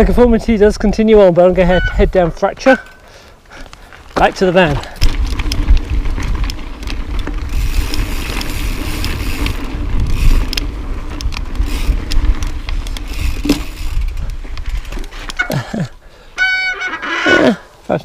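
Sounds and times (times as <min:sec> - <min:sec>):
bike clicks and rattles: 0:01.6 - 0:17.4
bike tyres rolling over rock: 0:03.5 - 0:15.8
wind rumble on microphone: 0:04.9 - 0:15.2.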